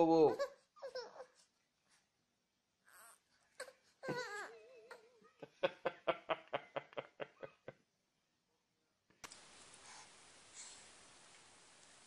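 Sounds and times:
baby laughing: 3.6s - 5.6s.

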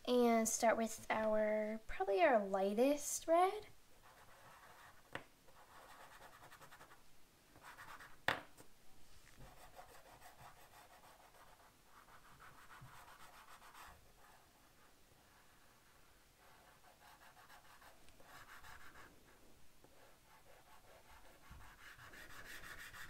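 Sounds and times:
chalk scratching on paper: 4.0s - 7.0s, 7.6s - 8.2s, 9.4s - 19.1s, 19.8s - 23.0s.

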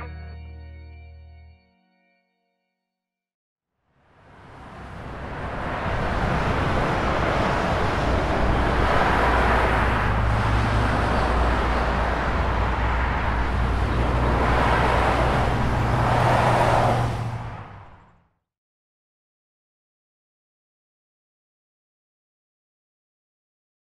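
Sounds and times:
freeway traffic rushing: 4.0s - 18.3s
vehicles passing: 4.0s - 18.3s.

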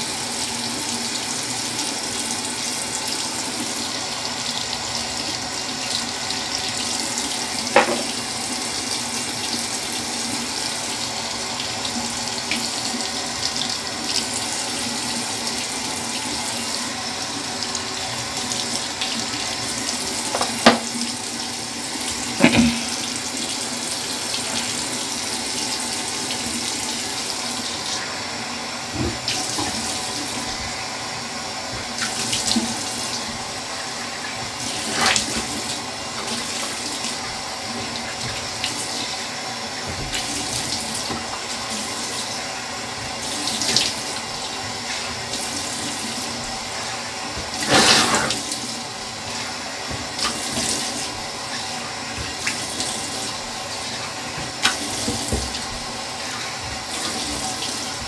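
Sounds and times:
sink tap running: 0.0s - 58.0s.

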